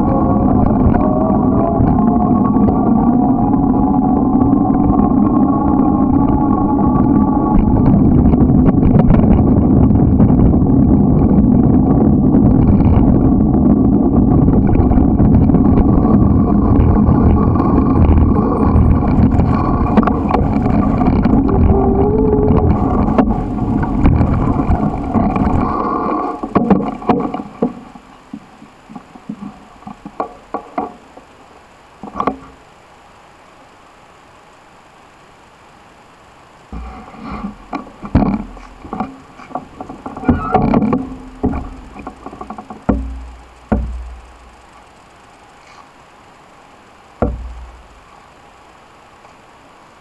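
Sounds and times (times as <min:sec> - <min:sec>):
wind rushing over microphone: 0:00.0 - 0:27.8
bicycle tyres rolling on asphalt: 0:00.0 - 0:50.0
clicks and knocks: 0:36.7 - 0:44.5.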